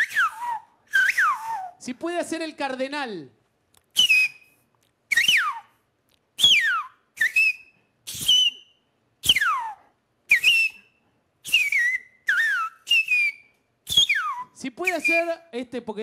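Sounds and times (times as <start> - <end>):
man whistling birdsong: 0.0 - 1.8, 4.0 - 5.7, 6.4 - 15.3.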